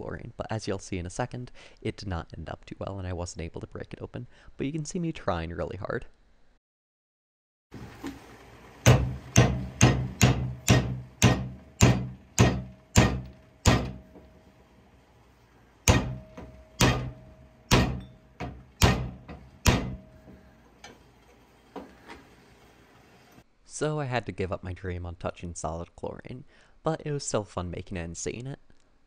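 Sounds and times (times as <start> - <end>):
hammer striking glass tube: 8.8 - 14.3, 15.8 - 20.5.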